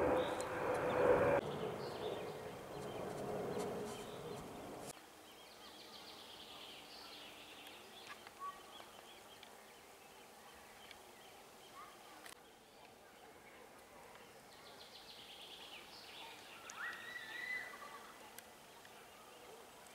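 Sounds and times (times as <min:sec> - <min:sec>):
distant hum: 0:00.0 - 0:04.9
faint bird chirps: 0:05.3 - 0:19.6.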